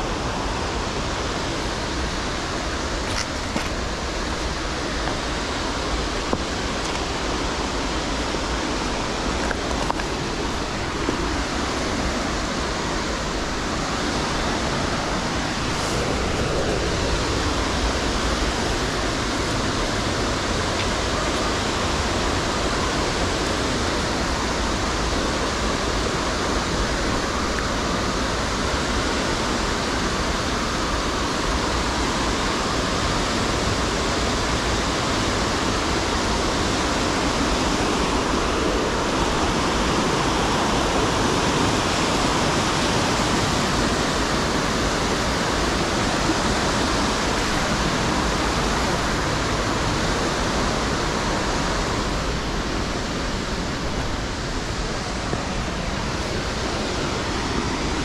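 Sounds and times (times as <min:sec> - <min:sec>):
waterfall rushing: 0:00.0 - 0:58.0.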